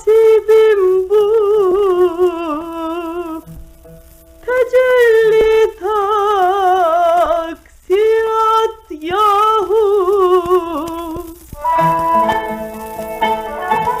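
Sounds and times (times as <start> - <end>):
woman singing: 0.0 - 3.5, 4.4 - 14.0
record surface clicks: 0.1 - 14.0
plucked string instruments: 11.3 - 14.0.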